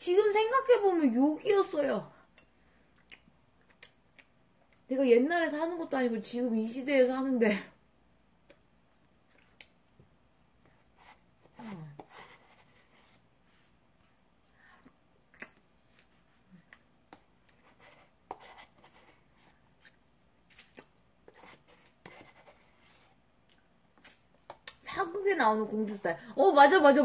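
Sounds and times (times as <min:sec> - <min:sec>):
mouth sounds of eating: 0:02.9 - 0:04.9, 0:14.8 - 0:17.4, 0:19.4 - 0:21.6.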